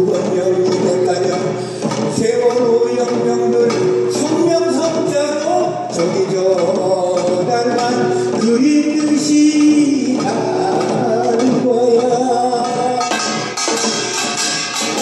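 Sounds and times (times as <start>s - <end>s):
drums beating: 0.0s - 15.0s
person singing long notes: 2.2s - 13.3s.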